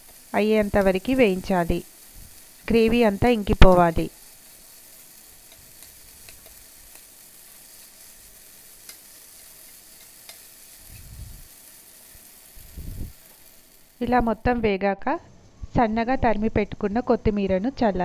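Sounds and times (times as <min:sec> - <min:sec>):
gravy sizzling in frying pan: 0:00.0 - 0:14.5
spatula clicking on pan: 0:05.4 - 0:07.1, 0:08.8 - 0:10.5.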